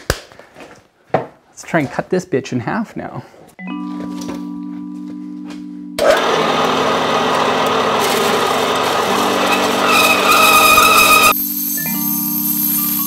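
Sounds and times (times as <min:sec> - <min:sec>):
band saw cutting metal: 0:06.0 - 0:13.0
high ringing tone: 0:09.8 - 0:13.0.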